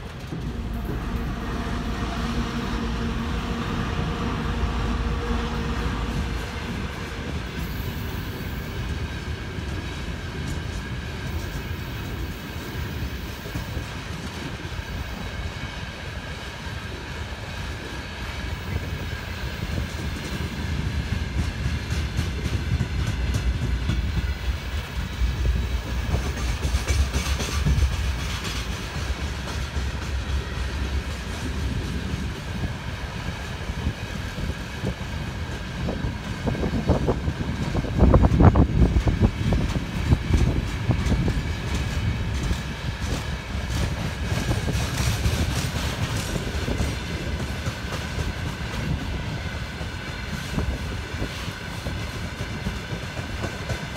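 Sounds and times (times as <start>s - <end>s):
train wagon wheels rumbling: 0.0s - 53.9s
wheels clicking over rail joints: 19.8s - 32.6s, 34.9s - 51.2s.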